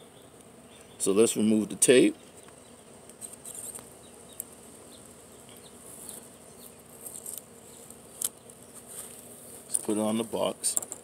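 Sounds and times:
high-pitched insect buzzing: 3.2 - 8.8.

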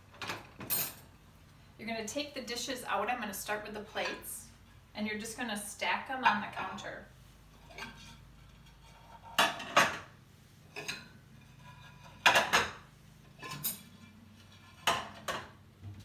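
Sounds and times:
dinner plates clattering: 7.6 - 10.1, 10.7 - 15.6.

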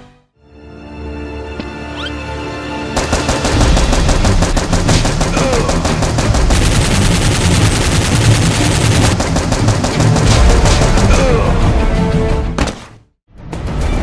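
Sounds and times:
background music: 0.0 - 14.0
machine-gun fire: 2.9 - 11.2.

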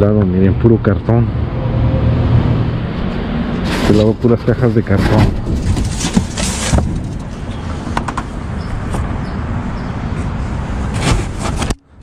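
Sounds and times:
cardboard boxes scraping: 3.6 - 7.7, 10.5 - 11.8
rustle: 4.9 - 7.9.

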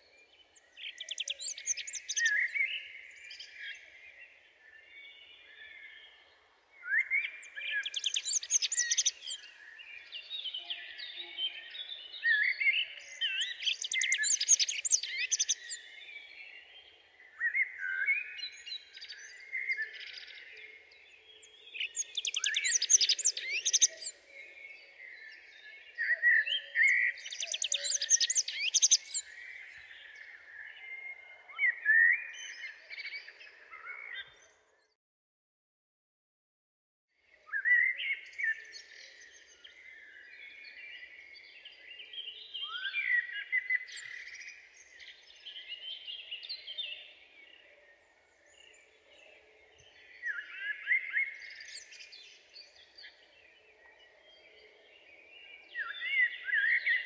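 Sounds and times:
soft bird chirps: 0.0 - 35.0, 37.4 - 57.0
songbird trilling: 26.9 - 29.2.

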